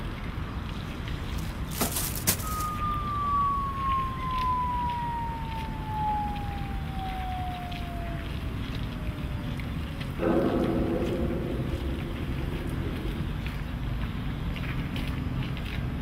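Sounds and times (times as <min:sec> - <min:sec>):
rubbish clattering into bin: 0:01.7 - 0:02.6
long falling whistle: 0:02.2 - 0:08.9.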